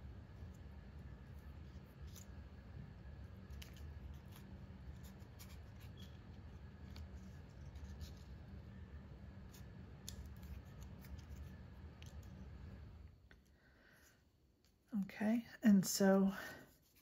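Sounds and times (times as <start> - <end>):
low steady hum: 0.0 - 17.0
paper clicks and crinkles: 1.3 - 2.4, 3.2 - 8.4, 9.5 - 12.4.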